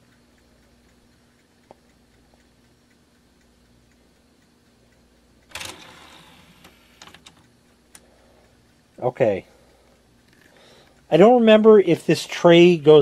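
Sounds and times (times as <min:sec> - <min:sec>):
faint ticks: 0:00.0 - 0:13.0
disc tray motor clatter and whirr: 0:05.5 - 0:07.5.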